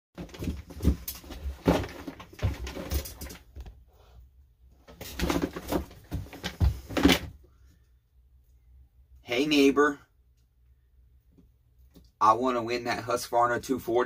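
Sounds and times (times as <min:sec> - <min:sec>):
plastic tub of parts rattling: 0:00.2 - 0:03.5.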